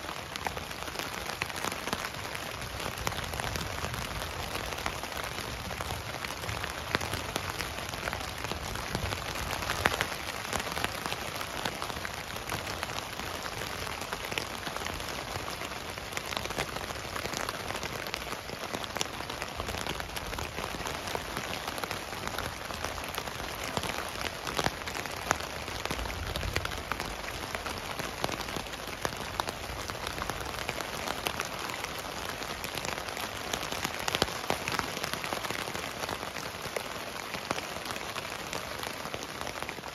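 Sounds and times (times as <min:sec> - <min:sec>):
rain pattering on tent: 0:00.0 - 0:39.9.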